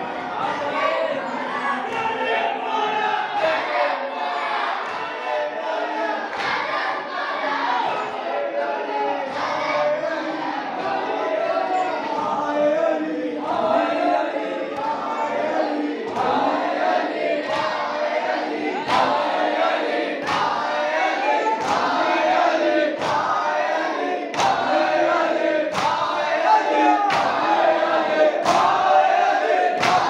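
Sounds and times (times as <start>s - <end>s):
crowd of men chanting: 0.0s - 30.0s.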